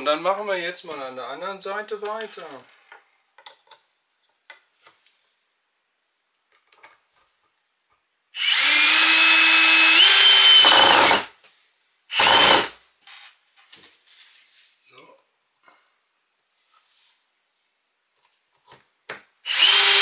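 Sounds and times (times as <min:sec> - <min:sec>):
cordless drill whining: 0:08.4 - 0:11.3, 0:12.1 - 0:12.8, 0:19.5 - 0:20.0.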